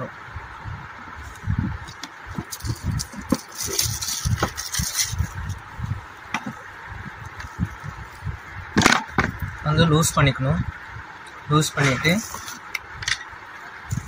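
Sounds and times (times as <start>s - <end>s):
plastic wrapping crinkling: 1.9s - 5.6s.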